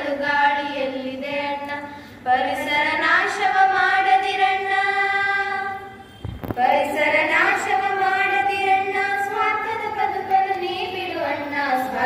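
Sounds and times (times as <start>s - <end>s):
girls singing together: 0.0s - 12.0s.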